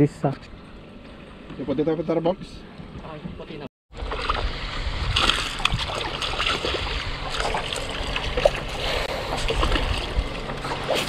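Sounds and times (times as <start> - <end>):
water lapping against boat hull: 0.2 - 11.0
wind buffeting microphone: 2.3 - 11.0.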